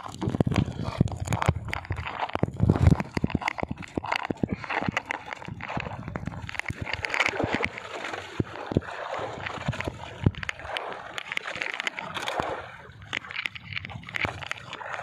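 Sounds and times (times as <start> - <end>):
water splashing against boat hull: 0.0 - 15.0.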